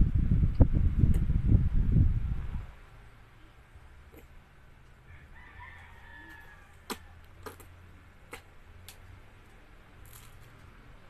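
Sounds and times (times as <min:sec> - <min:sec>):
low steady hum: 0:00.0 - 0:11.0
toddler chewing: 0:06.3 - 0:08.5.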